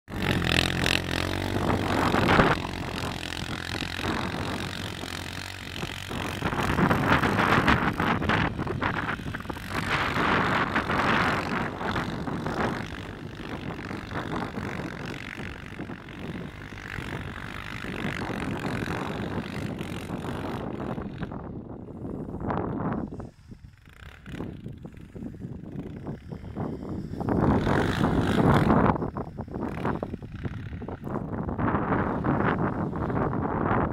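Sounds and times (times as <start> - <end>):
quad bike engine revving: 0.0 - 33.9.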